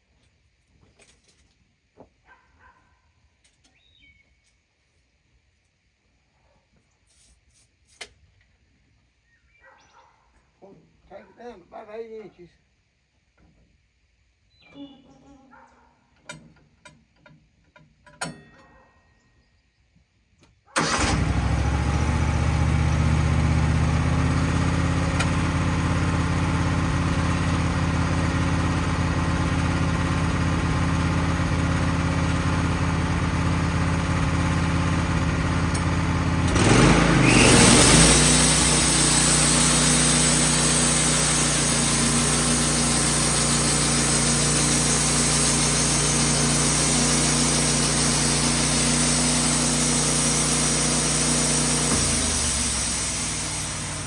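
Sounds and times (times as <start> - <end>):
sawmill engine idling and revving: 20.8 - 54.0
band saw cutting log: 35.7 - 54.0.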